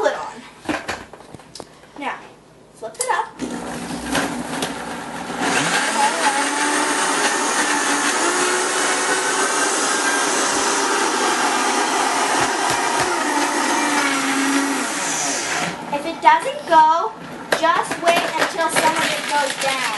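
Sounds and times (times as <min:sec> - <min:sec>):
blender crushing ice: 0:03.4 - 0:15.8, 0:17.9 - 0:19.9.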